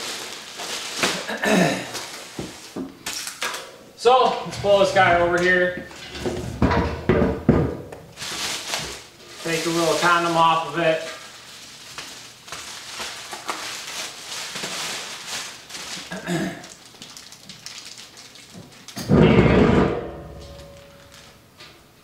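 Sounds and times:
plastic bag crinkling: 0.0 - 3.4, 8.1 - 19.0, 20.4 - 21.4
loud bump: 19.1 - 20.8.

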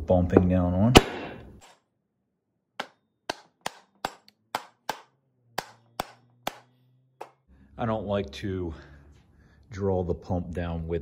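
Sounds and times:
hammer tapping metal: 2.8 - 7.4.

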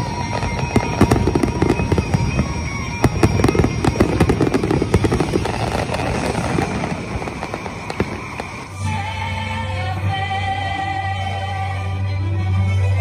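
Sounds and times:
fireworks bangs and crackles: 0.0 - 9.0.

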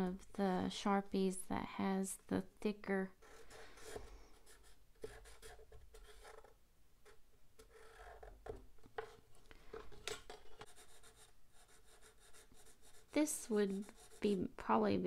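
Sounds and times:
marker scratching on paper: 3.2 - 8.3, 10.6 - 14.5.

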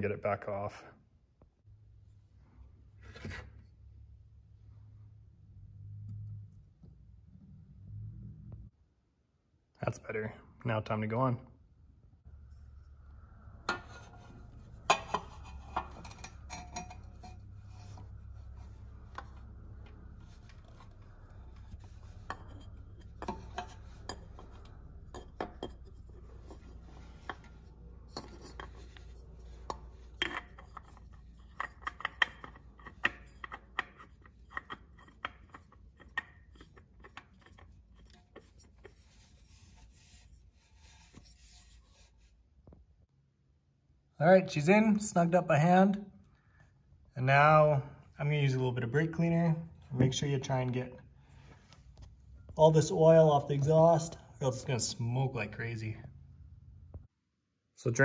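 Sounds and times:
metal oil filter scraping on engine: 12.4 - 42.3.

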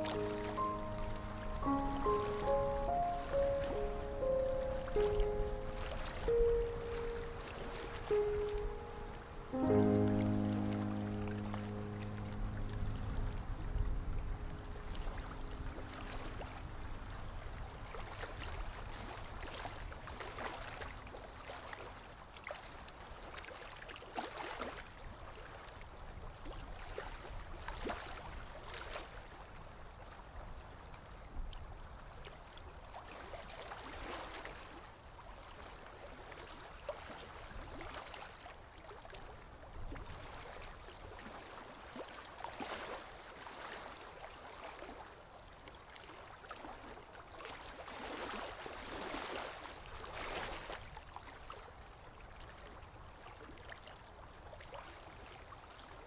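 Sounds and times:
music: 0.0 - 15.4.

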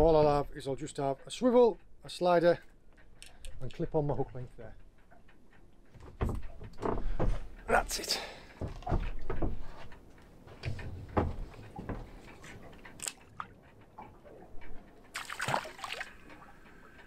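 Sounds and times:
water sloshing around boat: 0.0 - 17.0
knocks and clicks: 3.0 - 15.2.

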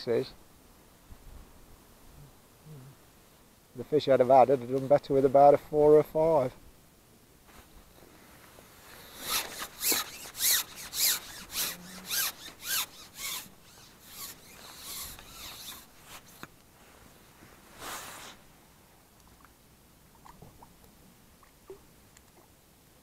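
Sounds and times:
fishing pole rubbing on jacket: 8.7 - 16.5, 17.6 - 18.4.

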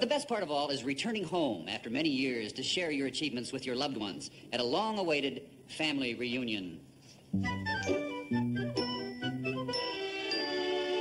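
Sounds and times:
bright tinkling theme music: 7.8 - 11.0.

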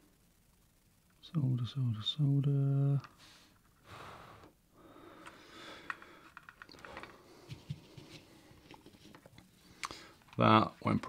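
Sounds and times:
soft breaths: 3.1 - 10.4.

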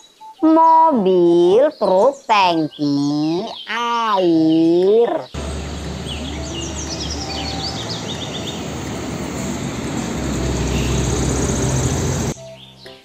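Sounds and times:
birds chirping: 1.5 - 12.4
truck driving past: 5.4 - 12.4.

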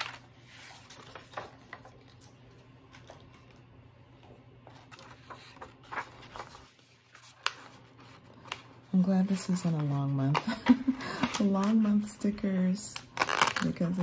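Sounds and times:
plastic sheet rustling and crinkling: 4.7 - 14.0.

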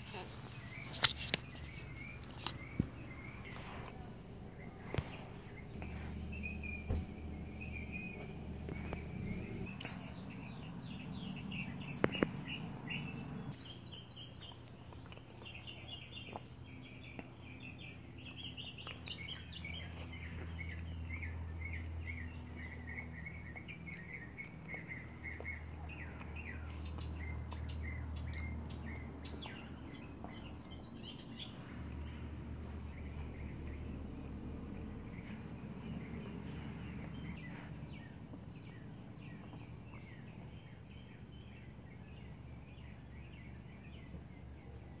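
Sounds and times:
low steady hum: 0.0 - 45.0
small songbirds chirping: 0.0 - 45.0.

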